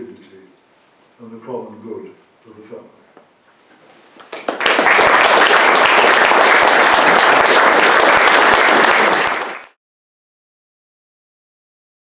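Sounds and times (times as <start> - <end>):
audience applauding: 4.2 - 9.8.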